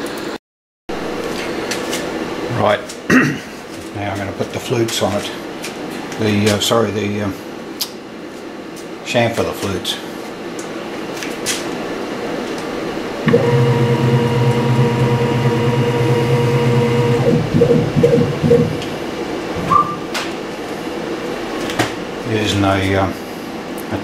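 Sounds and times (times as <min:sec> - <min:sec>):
milling machine motor humming: 0:13.2 - 0:19.2.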